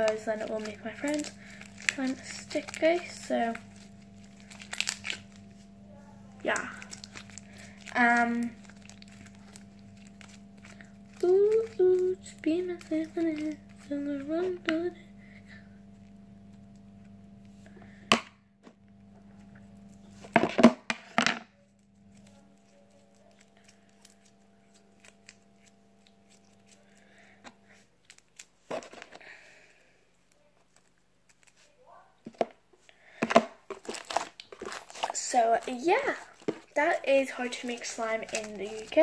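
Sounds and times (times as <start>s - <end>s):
steady low hum: 0.0s - 39.0s
slime popping and cracking: 4.0s - 5.4s, 33.7s - 35.7s.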